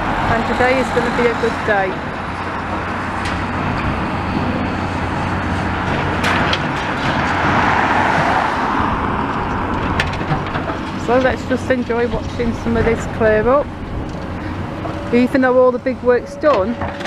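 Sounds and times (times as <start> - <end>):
low engine hum: 0.0 - 17.0
car driving past: 7.1 - 9.9.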